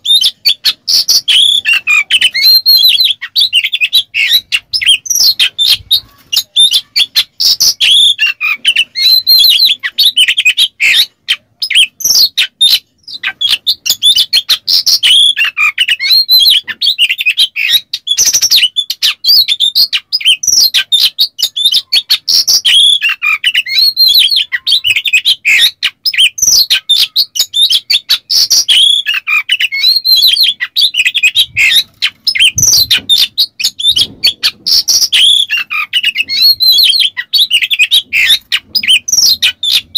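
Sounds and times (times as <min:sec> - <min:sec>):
bird singing whistles and rasps: 0:00.0 - 0:39.9.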